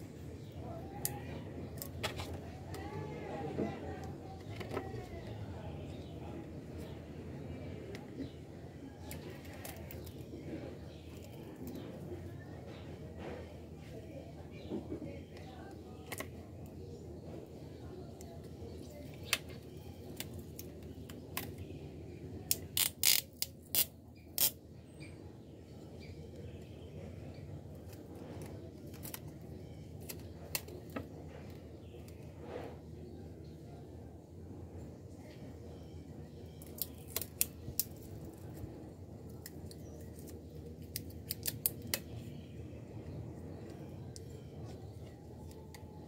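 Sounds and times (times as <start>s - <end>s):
adhesive tape roll handled: 22.5s - 24.6s, 36.6s - 38.6s, 39.3s - 42.2s.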